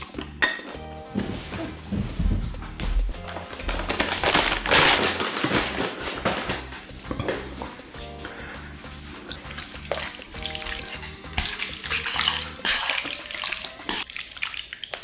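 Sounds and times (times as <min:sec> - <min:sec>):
quiet background music: 0:00.0 - 0:15.0
chopsticks stirring noodles in pan: 0:07.8 - 0:14.1.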